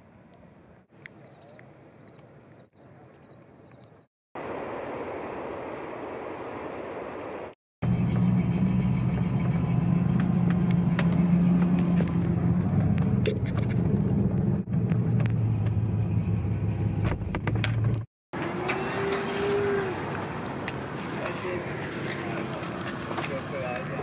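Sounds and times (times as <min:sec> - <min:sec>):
van engine and road noise: 0:07.8 - 0:24.0.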